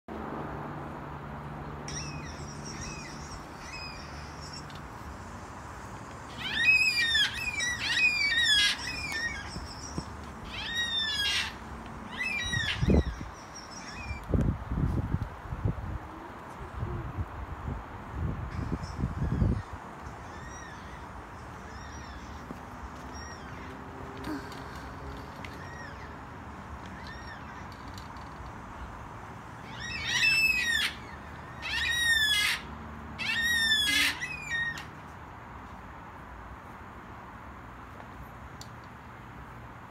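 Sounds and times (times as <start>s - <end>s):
cockatoos calling: 1.9s - 5.6s, 6.2s - 14.2s, 29.6s - 34.9s.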